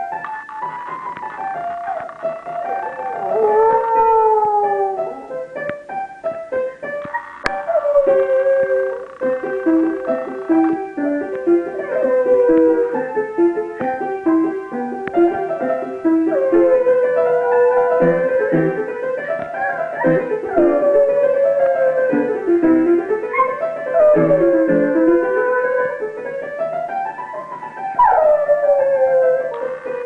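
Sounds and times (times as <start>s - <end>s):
piano chords: 0.0s - 30.0s
dog howling: 2.8s - 5.4s, 7.5s - 10.6s, 11.5s - 13.2s, 16.3s - 18.9s, 19.5s - 26.1s, 28.0s - 30.0s.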